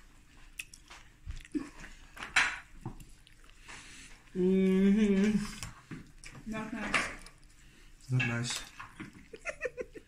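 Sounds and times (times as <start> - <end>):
mouth smacks and chewing clicks: 0.4 - 2.0
person humming mmm: 4.3 - 5.6.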